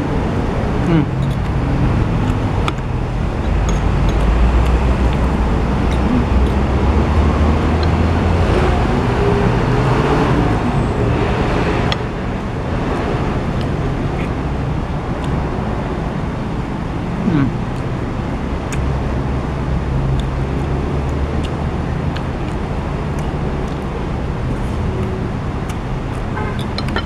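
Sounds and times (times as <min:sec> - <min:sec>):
highway traffic rushing: 0:00.0 - 0:27.0
cutlery clicking on a plate: 0:26.6 - 0:27.0.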